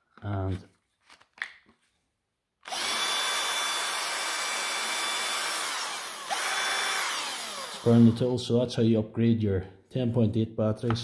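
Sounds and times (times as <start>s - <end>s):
cordless screwdriver motor running: 2.6s - 8.3s.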